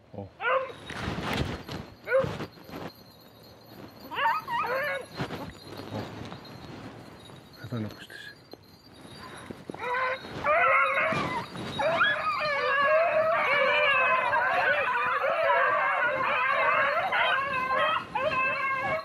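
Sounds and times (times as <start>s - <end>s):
dogs baying and howling: 0.4s - 0.9s, 4.0s - 5.4s, 9.2s - 19.0s.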